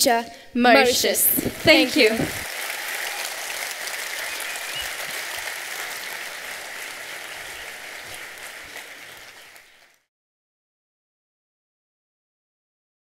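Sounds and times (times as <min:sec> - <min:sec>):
audience applauding: 0:01.3 - 0:10.1.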